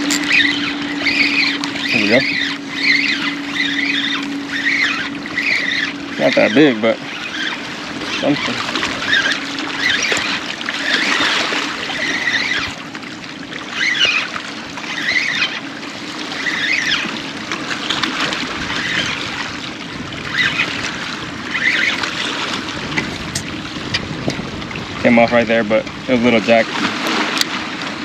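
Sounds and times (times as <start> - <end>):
water splashing against rocks: 5.4 - 14.5, 25.8 - 28.0
wind noise: 22.8 - 25.1.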